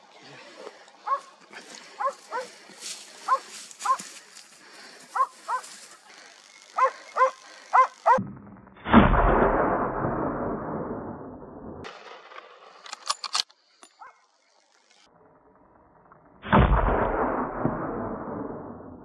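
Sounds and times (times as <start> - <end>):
dog barking: 1.0 - 1.3, 2.0 - 2.5, 3.3 - 4.1, 5.2 - 5.7, 6.8 - 8.2
loud bang: 8.2 - 11.2.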